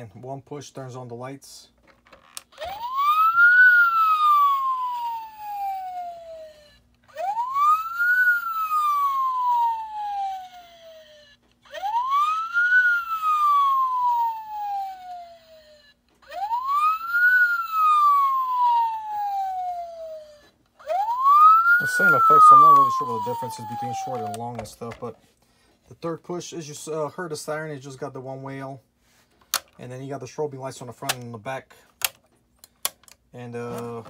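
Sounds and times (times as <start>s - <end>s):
toy police siren wailing: 2.3s - 25.0s.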